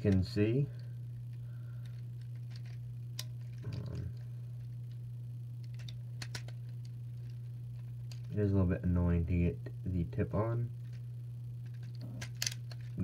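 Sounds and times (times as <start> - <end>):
low hum: 0.0 - 13.0
plastic pieces clicking: 1.8 - 4.2, 5.6 - 8.3, 11.6 - 13.0.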